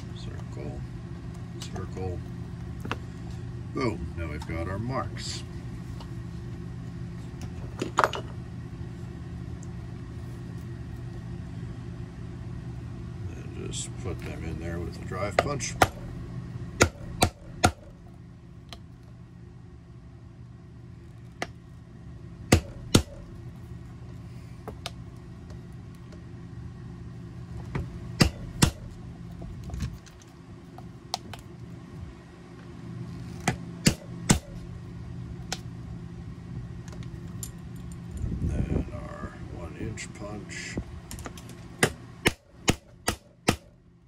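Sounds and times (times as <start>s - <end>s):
steady low hum: 0.0s - 44.0s
mallet striking punch: 16.8s - 17.9s, 22.5s - 23.3s, 28.2s - 28.9s, 33.8s - 34.6s, 41.8s - 43.7s.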